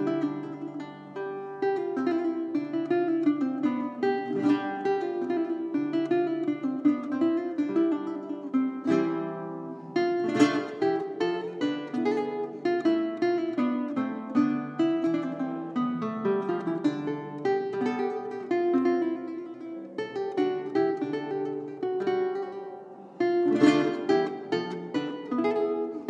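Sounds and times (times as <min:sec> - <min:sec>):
solo guitar playing: 0:00.0 - 0:26.0.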